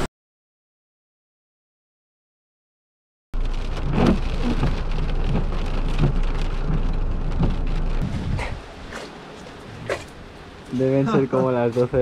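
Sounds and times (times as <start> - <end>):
constant low rumble: 3.4 - 12.0
heavy rain: 3.4 - 12.0.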